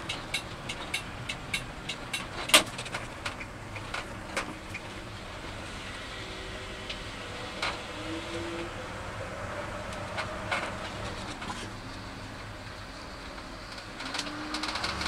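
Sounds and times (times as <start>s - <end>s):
clicks and rattles in cab: 0.0s - 5.2s, 10.0s - 15.0s
truck engine low rumble: 0.0s - 15.0s.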